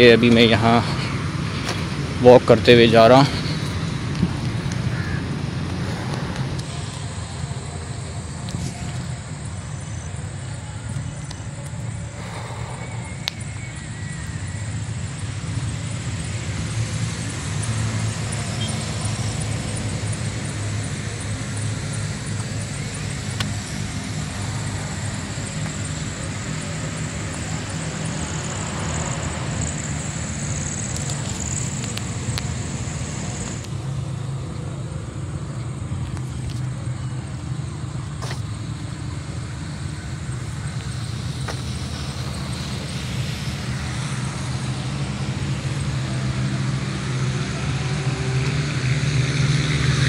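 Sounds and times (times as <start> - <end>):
low rumble of riding on pavement: 0.0 - 50.0
high-pitched insect trill: 8.0 - 33.6.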